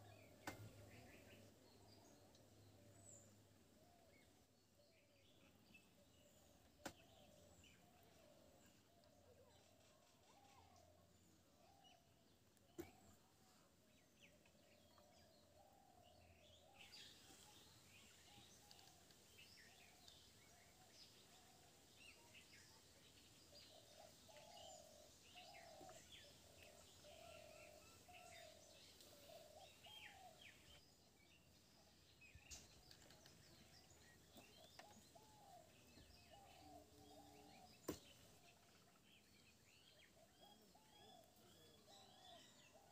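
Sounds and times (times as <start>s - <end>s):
faint birdsong chirps: 0.0s - 42.9s.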